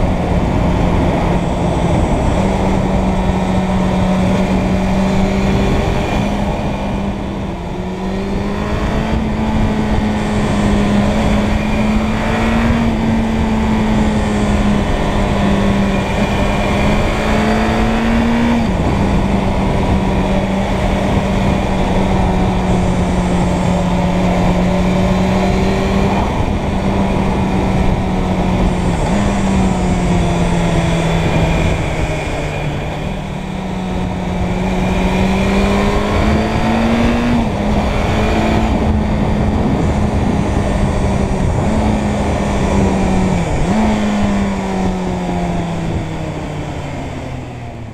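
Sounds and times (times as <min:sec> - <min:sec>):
motorcycle engine running: 0:00.0 - 0:47.9
wind rush: 0:00.0 - 0:47.9.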